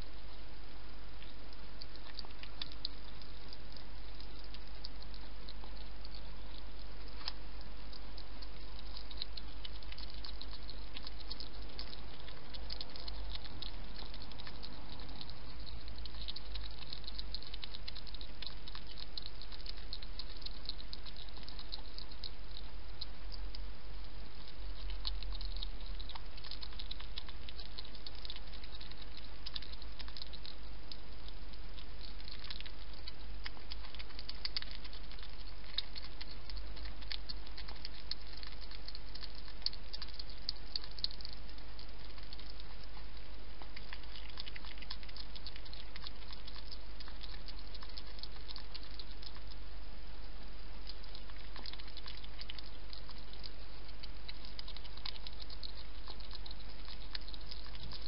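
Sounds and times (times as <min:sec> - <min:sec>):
hedgehog eating wet clicks: 0:00.0 - 0:58.0.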